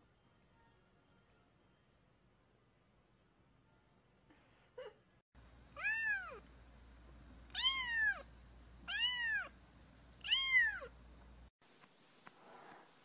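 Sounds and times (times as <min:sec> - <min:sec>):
kitten meowing: 0:05.8 - 0:06.4, 0:07.5 - 0:08.2, 0:08.9 - 0:09.5, 0:10.2 - 0:10.9.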